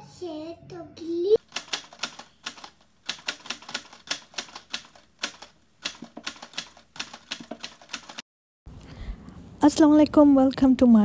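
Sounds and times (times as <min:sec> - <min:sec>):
typewriter key clicks: 0:01.5 - 0:08.2.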